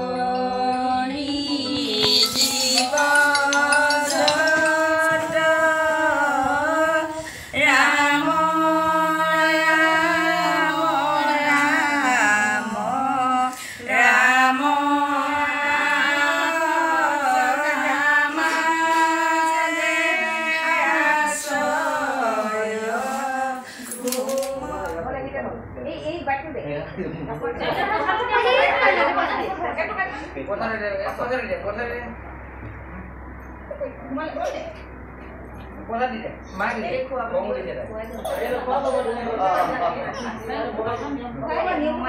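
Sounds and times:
voices singing a prayer chant: 0:00.0 - 0:25.2.

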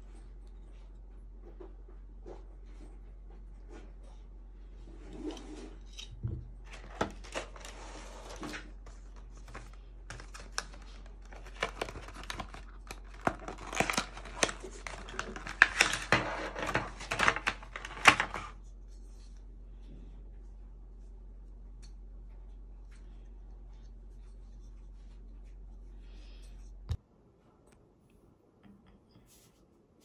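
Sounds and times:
cardboard and plastic wrap crinkling: 0:06.6 - 0:18.6.

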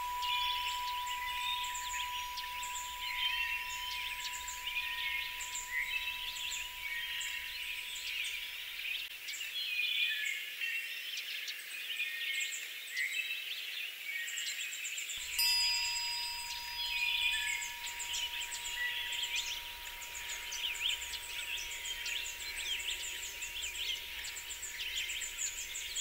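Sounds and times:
steady high tone: 0:00.0 - 0:08.9, 0:15.2 - 0:26.0
songbirds chirping and trilling: 0:00.0 - 0:26.0.

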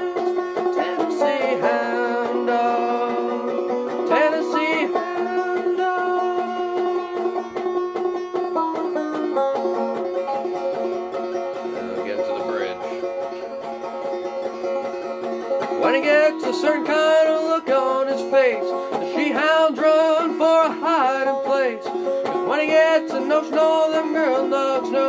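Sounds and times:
banjo plucked and brushed: 0:00.0 - 0:25.0.

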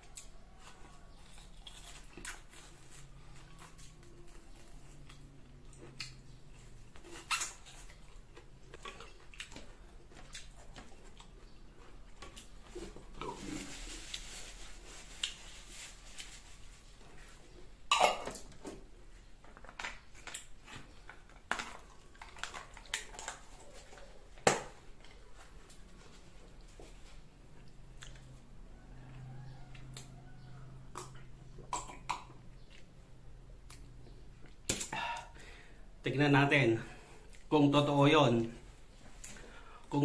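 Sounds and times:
chewing mouth sounds: 0:01.0 - 0:12.6.

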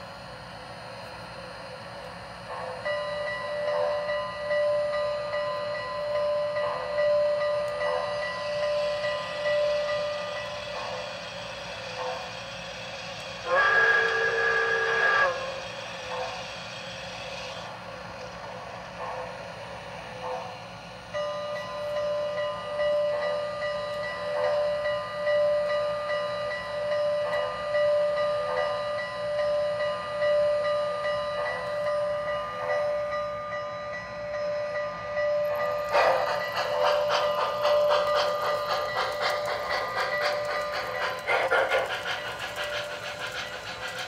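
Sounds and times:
steady whine: 0:00.0 - 0:24.2
model train steam puffs: 0:01.0 - 0:33.5, 0:34.9 - 0:44.0.

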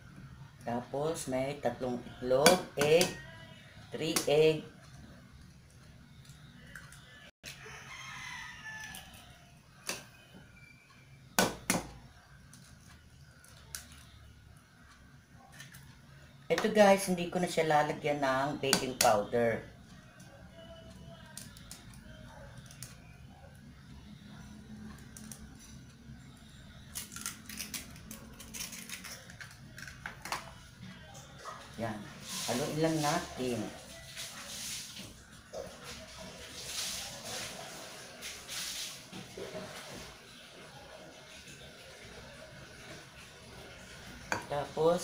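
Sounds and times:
faint rooster crowing: 0:02.8 - 0:03.9, 0:06.8 - 0:11.2
eggs cracking against glass bowl: 0:26.9 - 0:30.5.

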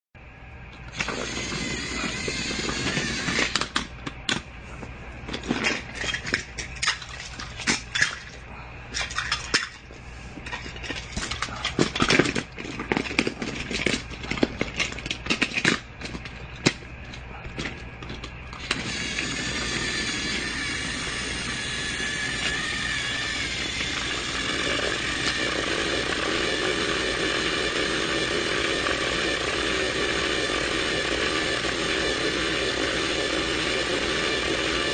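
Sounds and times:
small motor running: 0:00.9 - 0:03.9, 0:18.5 - 0:34.9.

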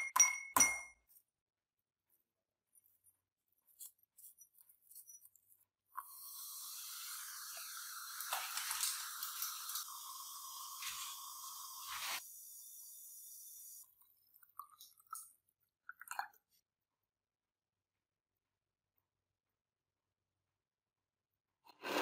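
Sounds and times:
powder hissing in water: 0:06.1 - 0:13.8.

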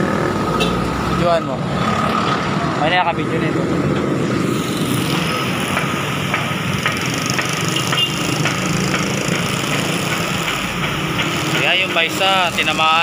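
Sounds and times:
water spouting hiss: 0:04.4 - 0:06.8.

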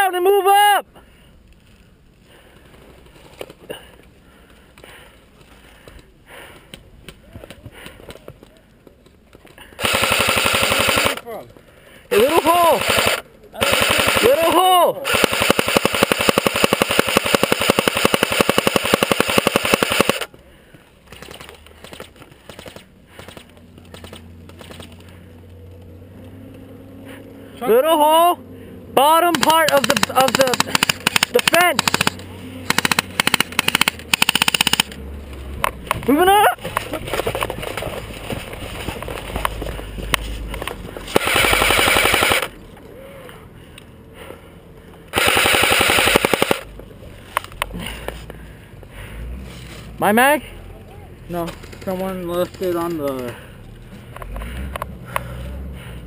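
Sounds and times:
airsoft rifle full-auto burst: 0:09.8 - 0:11.2, 0:12.1 - 0:20.3, 0:29.3 - 0:35.0, 0:41.1 - 0:42.6, 0:45.1 - 0:46.7
faint clicks: 0:42.7 - 0:43.9.

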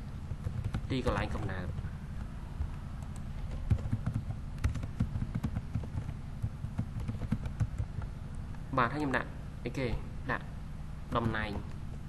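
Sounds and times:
keyboard typing clicks: 0:00.4 - 0:08.1.

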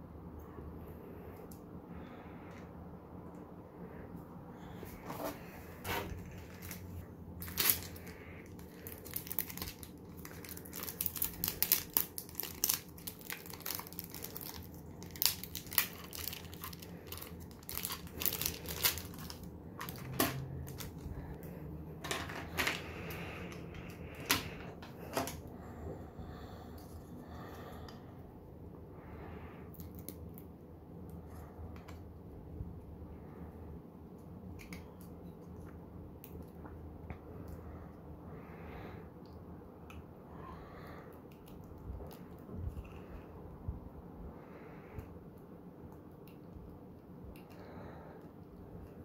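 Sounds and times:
plastic bag crinkling: 0:05.4 - 0:21.3.

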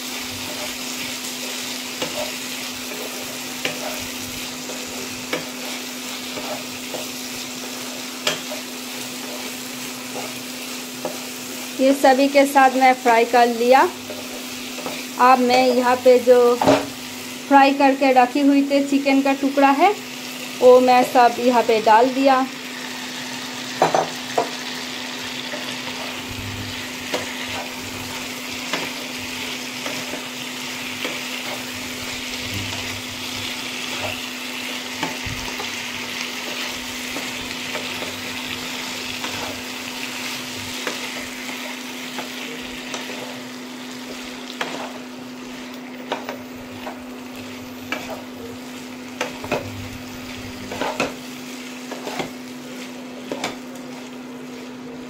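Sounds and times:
food sizzling in a wok: 0:00.0 - 0:55.0
spatula scraping a pan: 0:00.2 - 0:11.6, 0:14.0 - 0:15.2, 0:25.2 - 0:55.0.

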